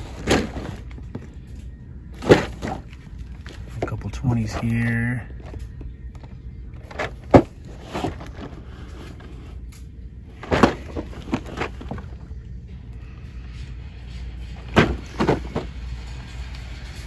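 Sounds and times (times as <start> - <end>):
cardboard boxes scraping and knocking: 0.0 - 1.3, 2.2 - 4.7, 6.8 - 9.6, 10.4 - 12.2, 14.6 - 15.9
low background hum: 0.0 - 17.0.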